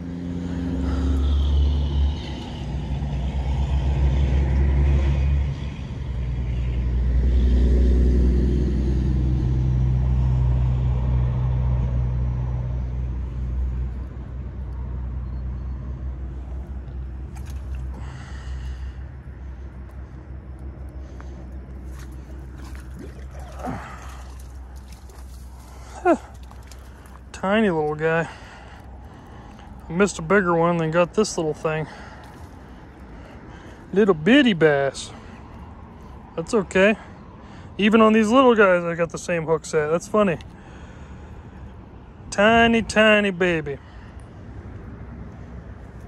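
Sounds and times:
vehicle engine rumble: 0:00.0 - 0:46.0.

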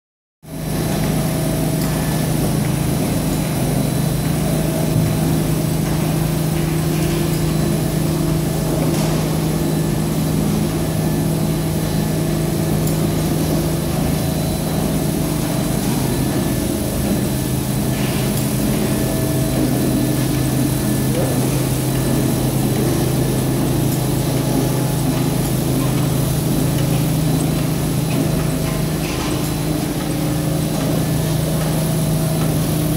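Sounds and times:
carpet washing machine humming: 0:00.5 - 0:32.9.

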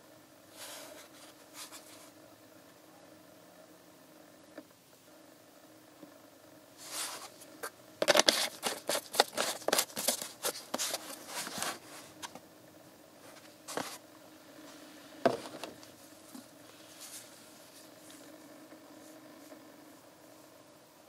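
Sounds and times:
plastic bottle crinkly rustles: 0:08.0 - 0:12.4, 0:13.3 - 0:14.0.

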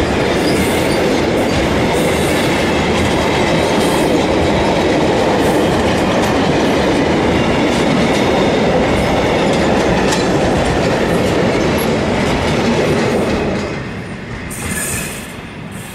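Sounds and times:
freight train wheels rumbling: 0:00.0 - 0:15.9.

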